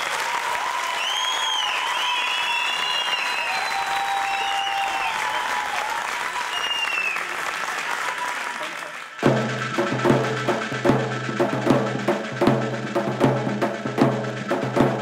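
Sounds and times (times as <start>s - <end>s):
audience applauding: 0.0s - 9.7s
crowd cheering: 0.0s - 10.3s.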